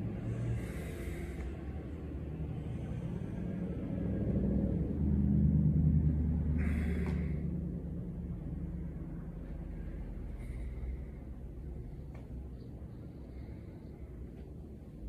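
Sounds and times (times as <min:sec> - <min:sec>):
steady low rumble: 0:00.0 - 0:15.0
forceful rushes of breath: 0:00.1 - 0:04.6, 0:06.3 - 0:08.0.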